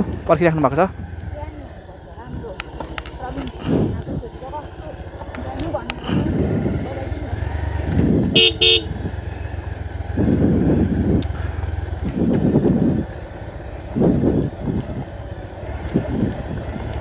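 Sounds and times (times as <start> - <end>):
motor vehicle rumbling: 0.0 - 17.0
vehicle horn beeps: 8.3 - 9.4.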